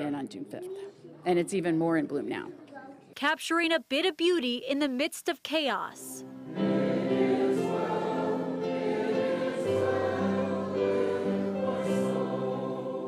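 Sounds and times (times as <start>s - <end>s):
congregation singing a hymn: 6.2s - 13.0s.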